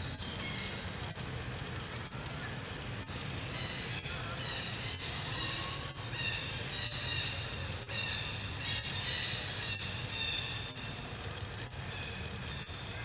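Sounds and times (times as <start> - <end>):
monkeys calling: 3.5 - 10.7.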